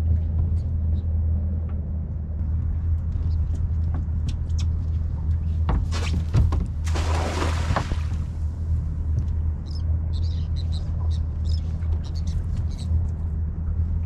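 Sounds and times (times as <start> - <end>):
net splashing onto water: 5.9 - 8.3.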